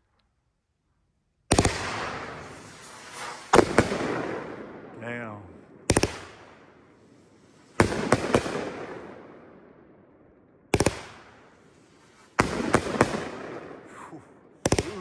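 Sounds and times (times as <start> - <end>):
firework cake bangs echoing: 1.5 - 6.7, 7.8 - 9.5, 12.3 - 13.9, 14.5 - 15.0.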